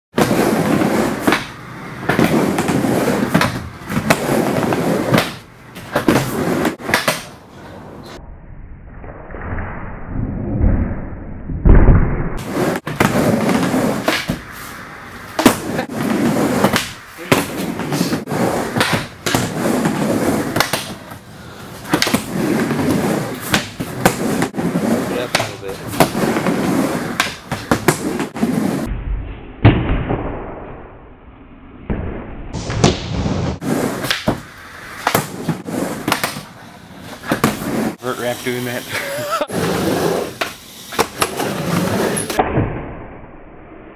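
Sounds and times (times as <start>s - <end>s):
skateboard wheels rolling on wood: 0.1s - 8.2s, 12.4s - 28.9s, 32.6s - 42.4s.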